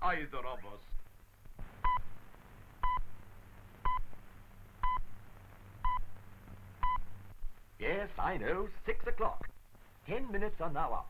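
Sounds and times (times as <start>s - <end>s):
radio time signal beeps: 1.8s - 2.1s, 2.8s - 3.1s, 6.8s - 7.1s.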